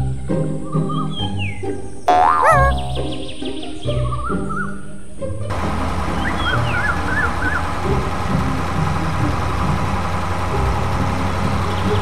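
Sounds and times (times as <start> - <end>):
heavy engine idling: 5.5 - 12.0.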